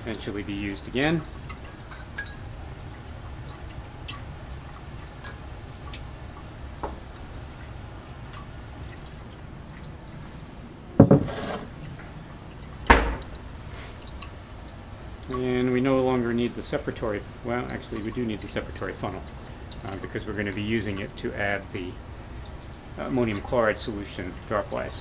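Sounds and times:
water trickling into sink: 0:00.0 - 0:25.0
glassware knocks: 0:11.0 - 0:11.6.

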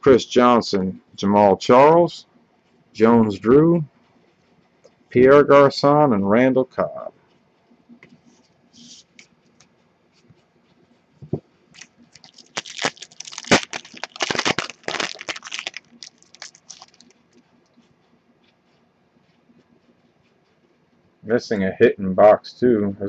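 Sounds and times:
foil wrapper crinkling: 0:11.8 - 0:17.4.

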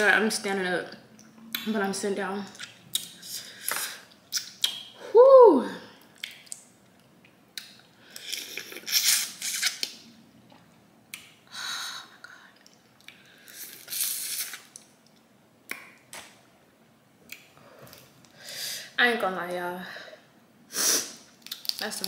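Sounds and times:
shells cracking and tearing: 0:21.4 - 0:22.0.

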